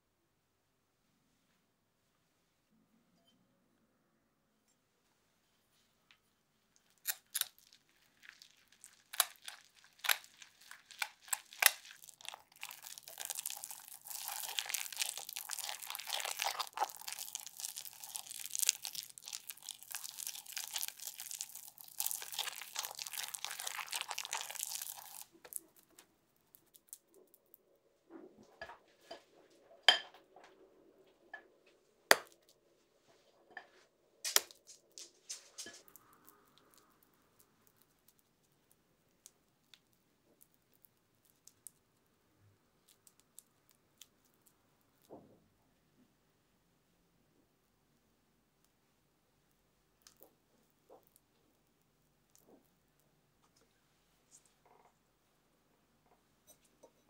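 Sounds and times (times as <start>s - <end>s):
wet scraping and mashing: 6.8s - 30.6s, 32.1s - 32.6s, 33.5s - 41.9s.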